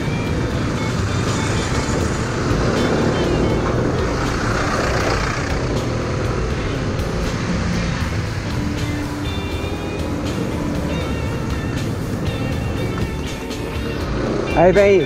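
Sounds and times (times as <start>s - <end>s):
low scooter engine rumble: 0.0s - 15.0s
wind and road rush: 0.0s - 15.0s.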